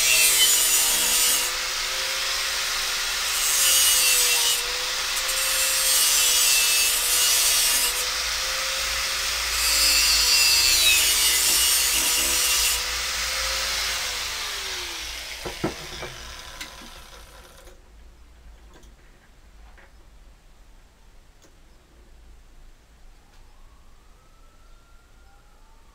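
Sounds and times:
angle grinder grinding steel: 0.0s - 17.8s
sharp knocks: 15.4s - 17.0s.

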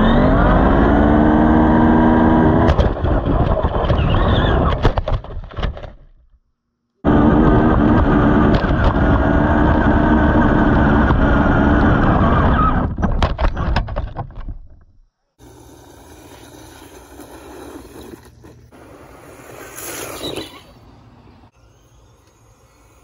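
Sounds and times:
electric motor and gears whining: 0.0s - 2.8s, 7.0s - 13.0s, 20.2s - 23.0s
knocks and clatter of bouncing truck: 2.6s - 6.2s, 12.8s - 15.0s
toy truck driving on dirt: 15.4s - 23.0s.

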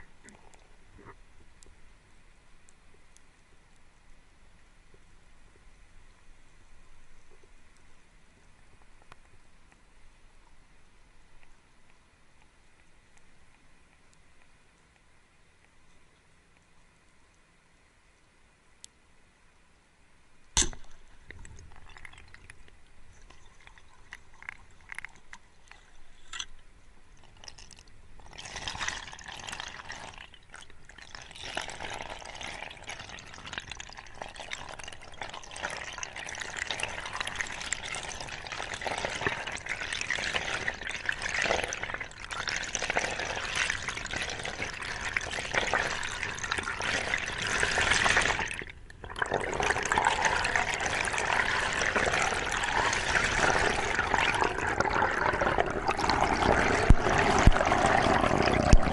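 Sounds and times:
faint clicks: 7.3s - 10.6s, 11.3s - 17.5s, 18.1s - 19.0s
underwater rushing and bubbling: 20.6s - 58.9s.

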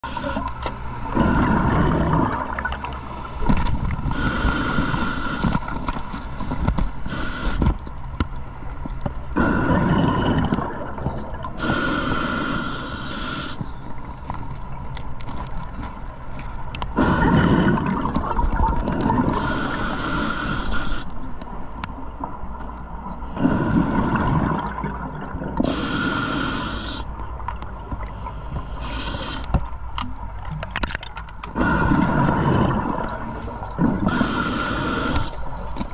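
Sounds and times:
exhaled bubbles gurgling underwater: 0.0s - 6.0s, 9.3s - 15.8s, 16.6s - 35.9s
regulator inhale hiss: 4.1s - 5.7s, 7.0s - 7.7s, 11.6s - 13.8s, 19.3s - 21.2s, 25.6s - 27.1s, 28.1s - 29.6s, 34.0s - 35.6s.

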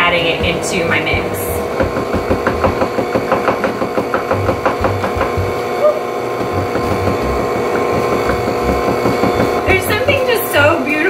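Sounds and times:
stand mixer motor hum: 0.0s - 11.0s.

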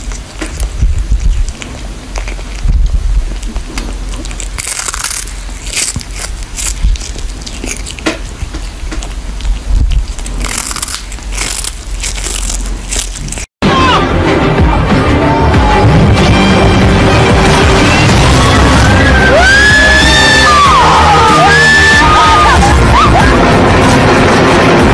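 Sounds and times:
cat crunching dried fish: 0.0s - 13.5s.

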